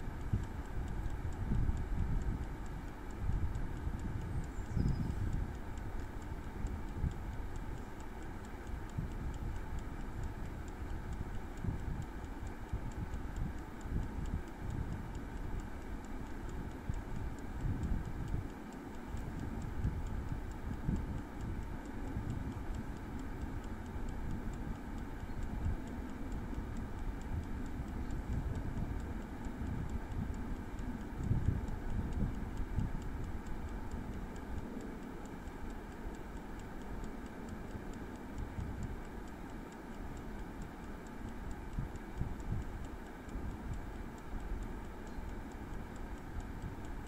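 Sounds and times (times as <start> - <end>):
wind rumble on microphone: 0.0 - 18.5, 19.2 - 34.7, 41.5 - 44.7
clockwork timer ticking: 0.0 - 47.0
fan humming: 0.0 - 47.0.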